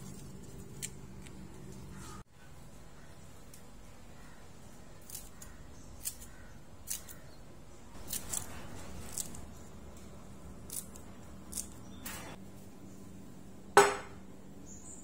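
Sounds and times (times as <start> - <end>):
scissors snipping green onion: 5.0 - 7.4, 8.0 - 12.0.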